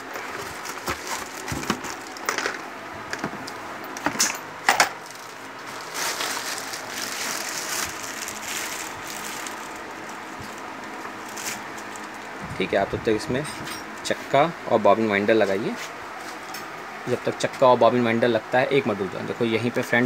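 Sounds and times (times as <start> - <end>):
plastic bag crinkling: 0.3 - 2.5, 5.0 - 12.3
polystyrene foam being handled: 5.0 - 10.6.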